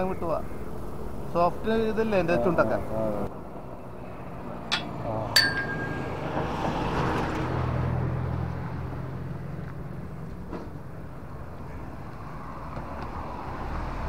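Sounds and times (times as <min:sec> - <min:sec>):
sharp metallic clinks: 0:04.7 - 0:06.4.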